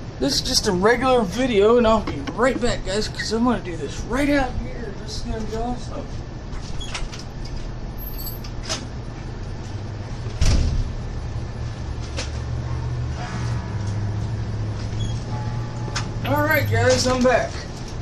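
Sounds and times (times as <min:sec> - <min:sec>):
vehicle engine rumble: 0:01.9 - 0:18.0
sharp knocks: 0:02.0 - 0:02.7.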